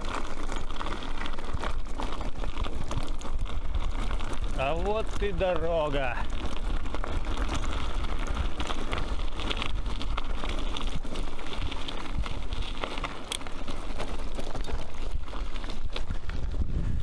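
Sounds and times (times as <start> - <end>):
bicycle tyres rolling: 0.0 - 17.0
bike rattling and clicking: 0.0 - 17.0
wind on microphone: 15.8 - 17.0.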